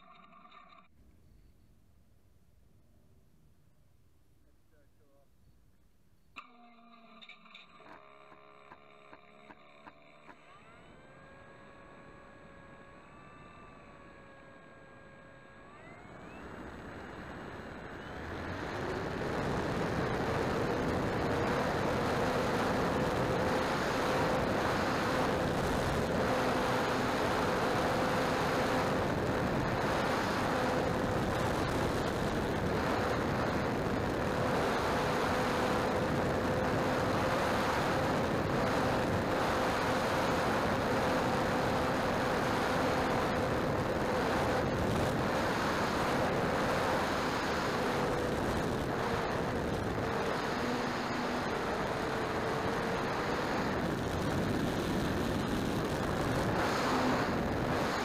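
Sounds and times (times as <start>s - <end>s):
electric motor and propeller whine: 6.4s - 58.0s
wind rush on microphone: 16.6s - 58.0s.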